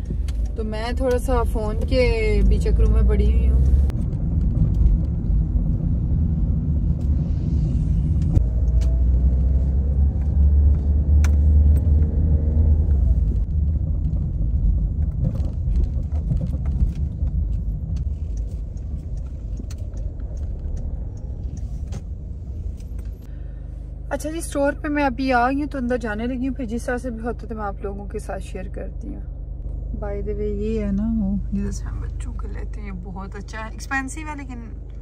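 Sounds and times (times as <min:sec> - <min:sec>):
car engine and tyre rumble: 0:00.0 - 0:35.0
light clicks and rattles: 0:15.0 - 0:23.3.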